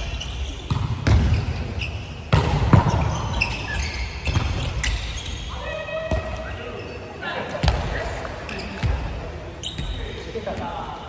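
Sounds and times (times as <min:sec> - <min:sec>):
volleyball smacks in hall: 0:00.6 - 0:01.7, 0:02.3 - 0:03.5, 0:04.2 - 0:04.8, 0:07.5 - 0:09.1.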